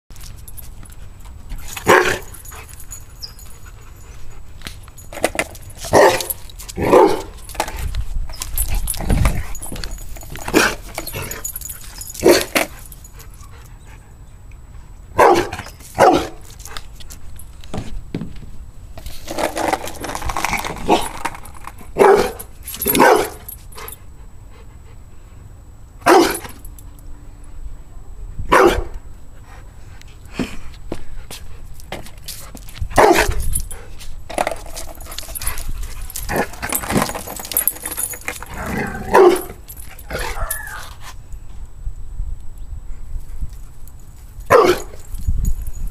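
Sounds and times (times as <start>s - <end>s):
dog barking: 6.0s - 7.3s, 15.2s - 16.4s, 22.0s - 22.4s, 23.0s - 23.4s, 26.0s - 26.4s, 28.5s - 28.9s, 33.0s - 33.3s, 39.0s - 39.5s, 44.5s - 44.9s.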